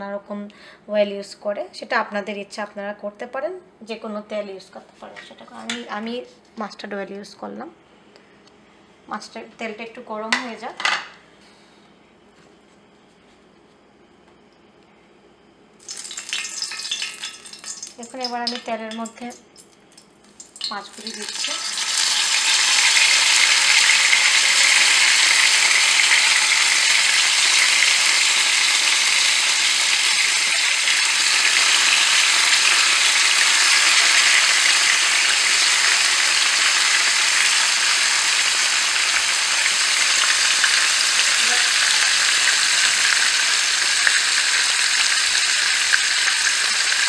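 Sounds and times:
fish sizzling in hot oil: 15.8s - 19.2s, 20.2s - 47.0s.

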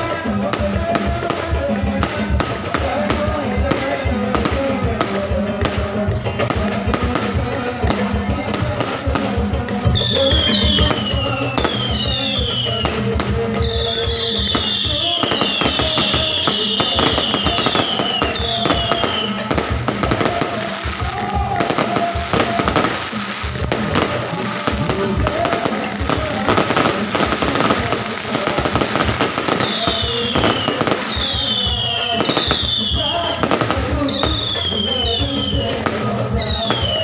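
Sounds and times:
fireworks popping and crackling: 0.0s - 37.0s
falling firework whistles: 10.0s - 13.0s, 13.6s - 19.5s, 29.0s - 33.4s, 34.0s - 35.8s, 36.4s - 37.0s.

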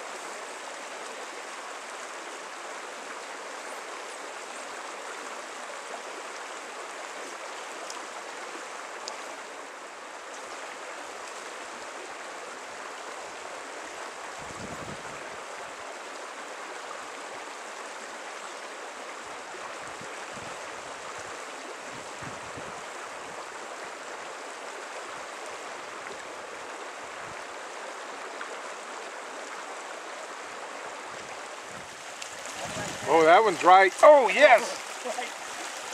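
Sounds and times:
creek water rushing: 0.0s - 35.9s.

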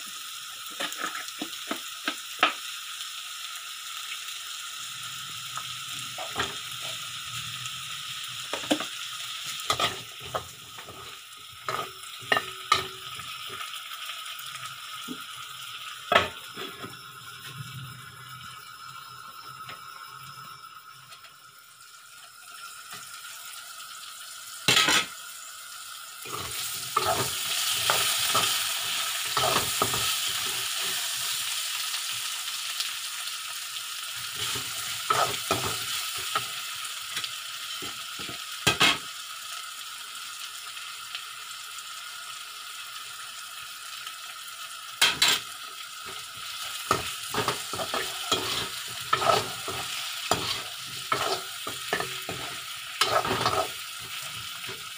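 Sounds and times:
vegetables sizzling in hot oil: 0.0s - 54.9s
metal spatula scraping a pan: 9.6s - 11.0s, 24.7s - 25.1s, 26.3s - 28.6s, 46.1s - 54.8s.

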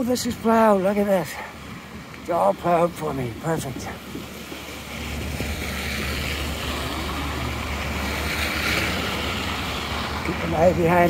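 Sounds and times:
broad outdoor rush: 0.0s - 11.0s
wind buffeting microphone: 3.0s - 11.0s.

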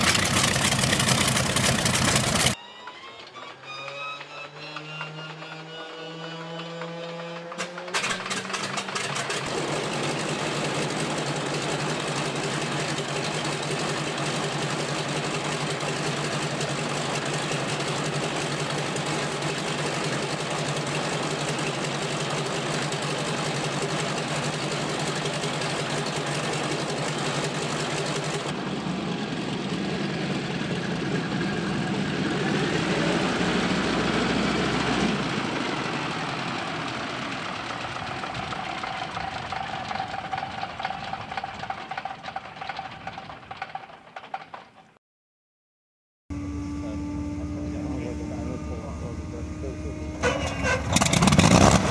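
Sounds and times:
radial engine idling: 0.0s - 2.6s, 8.9s - 33.2s, 46.3s - 51.6s.

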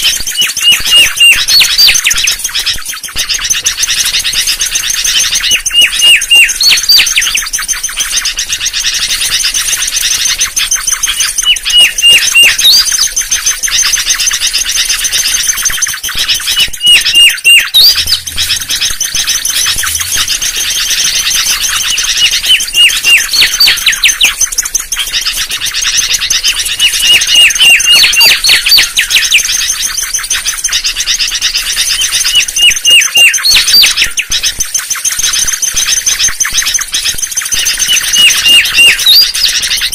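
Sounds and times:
bird whistling phrases: 0.0s - 39.9s
high-pitched chatter: 0.0s - 39.9s.

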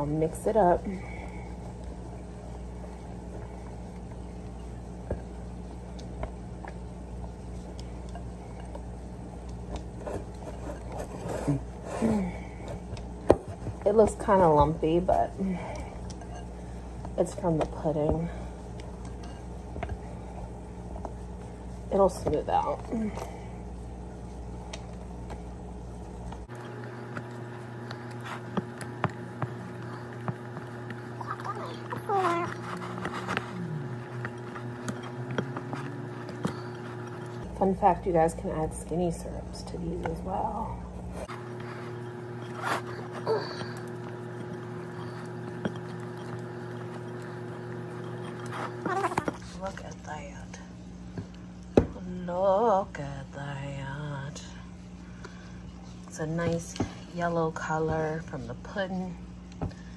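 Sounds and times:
spatula folding mixture in bowl: 0.0s - 49.8s
steady low hum: 0.0s - 59.9s
utensil stirring in glass bowl: 13.8s - 22.6s, 31.8s - 39.0s, 41.2s - 49.5s.

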